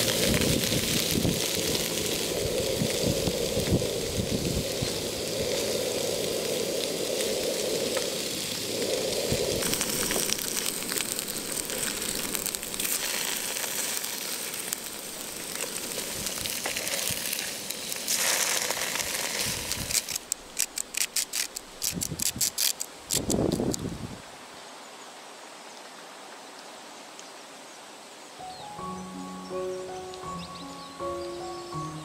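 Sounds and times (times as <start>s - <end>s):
crunching clicks of seasoning: 0.0s - 23.9s
tofu sizzling in oil: 9.6s - 23.2s.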